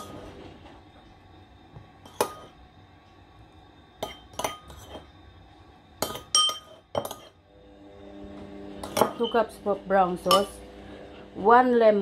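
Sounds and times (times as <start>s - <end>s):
spoon clinking on dishware: 4.0s - 5.1s, 6.0s - 7.3s, 8.8s - 9.4s, 10.3s - 10.6s.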